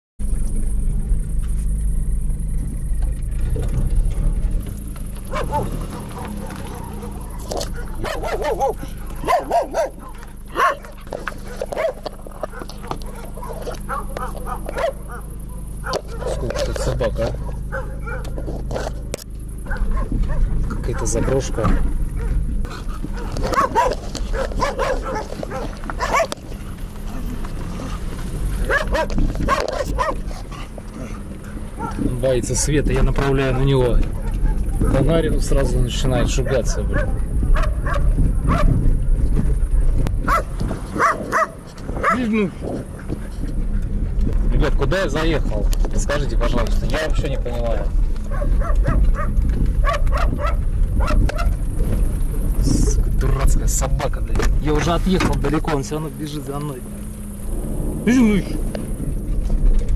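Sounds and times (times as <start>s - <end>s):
car engine rumble: 0.2s - 59.9s
road noise: 0.2s - 59.9s
dog barking: 5.3s - 18.9s, 19.6s - 26.4s, 28.6s - 32.0s, 34.0s - 35.0s, 36.3s - 38.8s, 40.2s - 42.3s, 48.3s - 51.6s.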